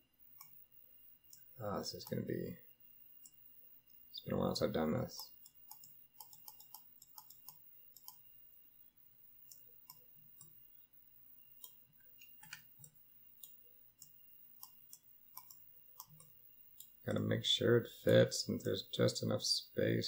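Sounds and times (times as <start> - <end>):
computer mouse clicks: 0.4 - 0.6, 1.2 - 2.2, 5.2 - 8.3, 9.4 - 10.6, 11.6 - 17.0.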